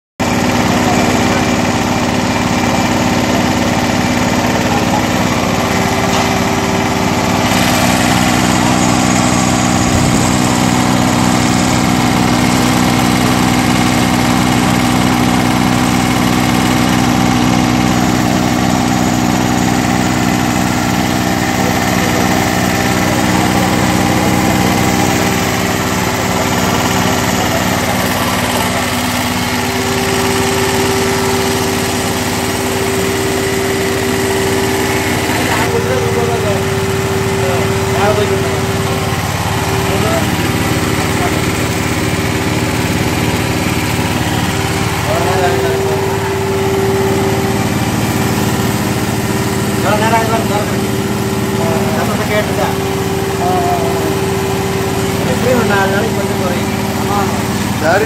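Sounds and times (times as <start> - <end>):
small petrol engine drone: 0.2 - 58.0.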